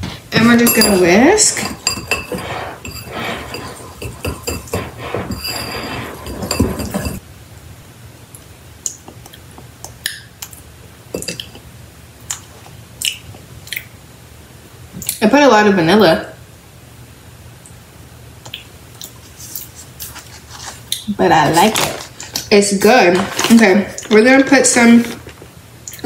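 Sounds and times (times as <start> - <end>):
wire whisk clinking in a bowl: 0.4 - 7.2.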